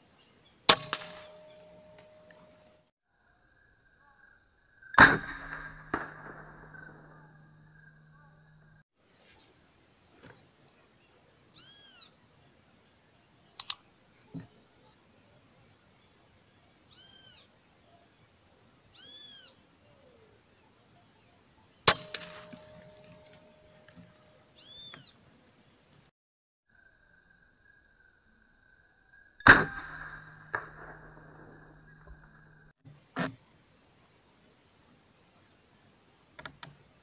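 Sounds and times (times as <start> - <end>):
sharp clicks: 13.6 - 13.8.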